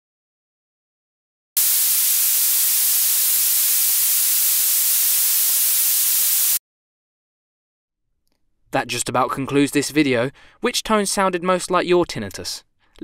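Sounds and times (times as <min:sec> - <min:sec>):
white noise hiss: 0:01.6 - 0:06.6.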